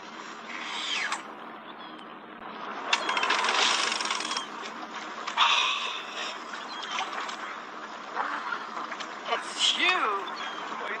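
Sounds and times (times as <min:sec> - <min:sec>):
fishing reel ratcheting: 0:03.0 - 0:04.5.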